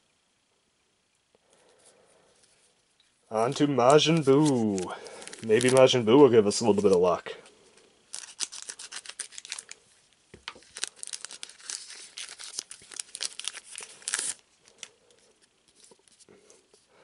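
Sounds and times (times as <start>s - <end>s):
foil wrapper crinkling and tearing: 3.4s - 7.3s, 8.1s - 9.8s, 10.4s - 16.3s.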